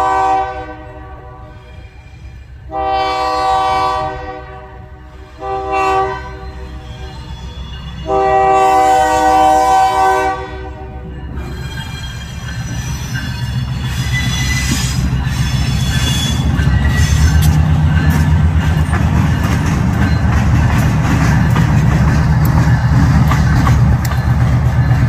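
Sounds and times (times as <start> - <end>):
diesel locomotive engines rumbling: 0.0 - 25.0
wheels squealing: 6.3 - 8.1, 11.3 - 25.0
train wheel clicks: 11.3 - 25.0.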